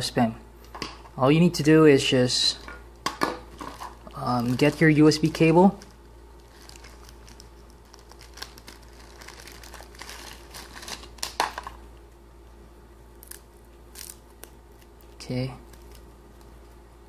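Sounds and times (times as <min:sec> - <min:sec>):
plastic bag crinkling: 0:03.5 - 0:11.8.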